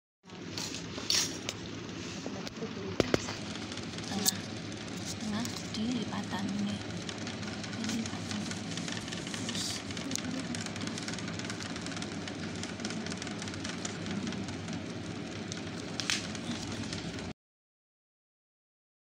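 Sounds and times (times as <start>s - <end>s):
background hiss and hum: 0.3s - 17.3s
paper rustling and tapping: 7.0s - 17.3s.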